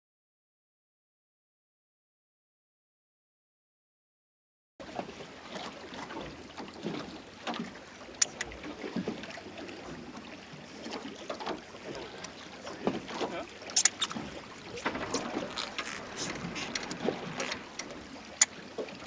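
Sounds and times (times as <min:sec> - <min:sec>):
wind: 0:04.8 - 0:19.0
water washing on deck: 0:10.9 - 0:19.0.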